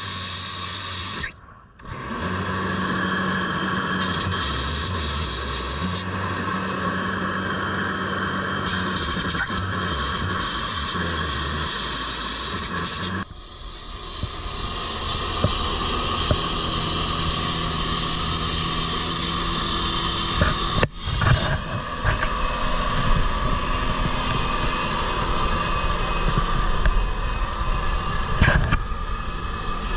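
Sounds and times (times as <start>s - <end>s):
saw blade rushing in asphalt: 0.0s - 29.9s
saw engine drone: 0.0s - 29.9s.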